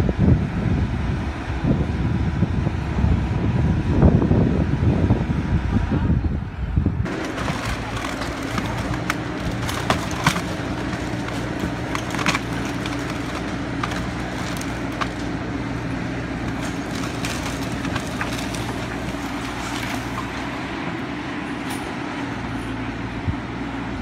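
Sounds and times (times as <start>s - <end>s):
excavator diesel engine running: 0.0s - 24.0s
breaking timber cracks and crunches: 7.1s - 20.6s.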